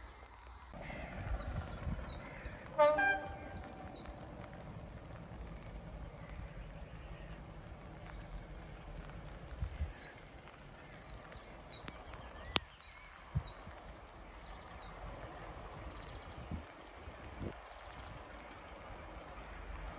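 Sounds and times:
songbird chirping: 0.6 - 16.8
low rumble: 0.7 - 12.3.

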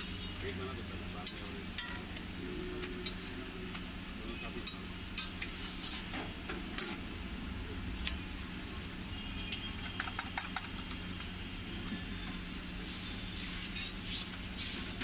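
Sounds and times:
food sizzling on a griddle: 0.0 - 7.2, 12.6 - 15.0.

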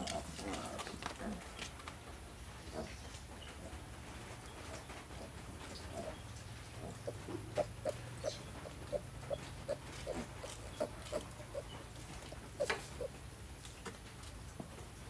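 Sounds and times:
piglets grunting: 4.7 - 13.2.

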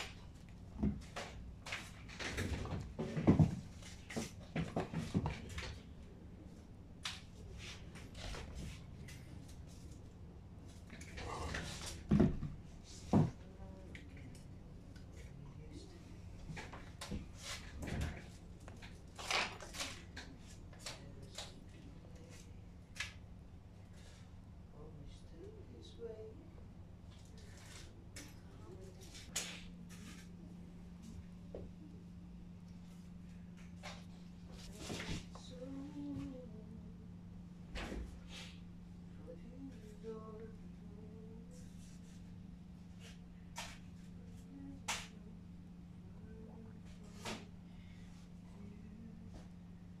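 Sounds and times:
low steady hum: 0.0 - 50.0.

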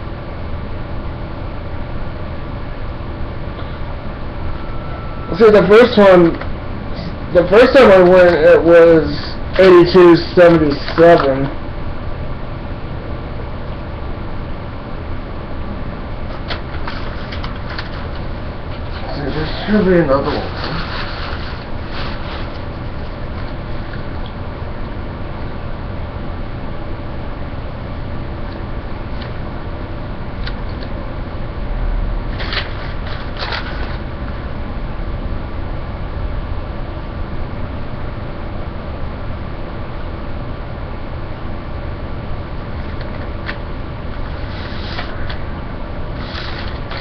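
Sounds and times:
low room hum and hiss: 0.0 - 47.0
paper crinkling: 16.3 - 24.1, 32.3 - 34.4, 46.2 - 47.0.

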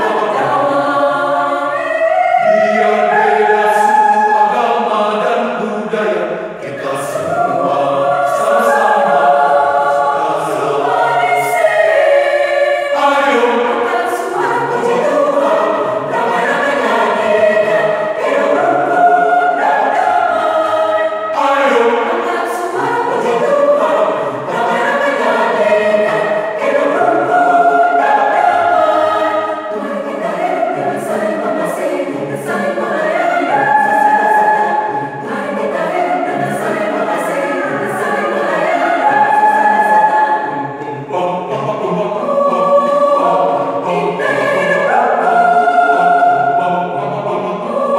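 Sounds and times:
mixed choir singing: 0.0 - 47.9.

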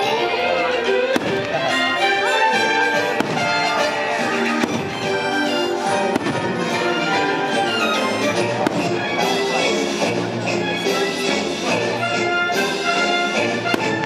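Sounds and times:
orchestral music with brass: 0.0 - 14.0
fireworks bangs: 1.2 - 1.9, 3.0 - 7.0, 8.6 - 9.4, 13.6 - 14.0.

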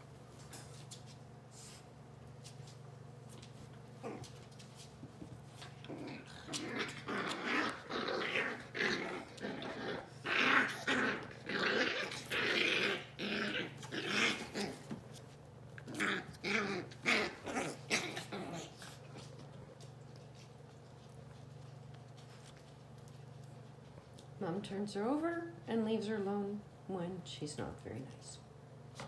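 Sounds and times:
dogs growling while play-wrestling: 3.9 - 4.5, 5.1 - 15.2, 15.8 - 19.9.

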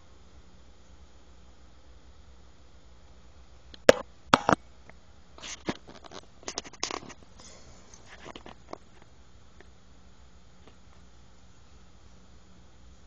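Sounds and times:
rustles and scratches in cage: 5.4 - 9.2.

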